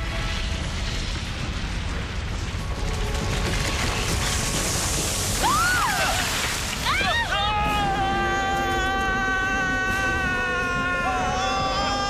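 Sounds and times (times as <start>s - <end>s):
heavy rumble of crumbling rock: 0.0s - 12.0s
rising and falling wail: 5.4s - 12.0s.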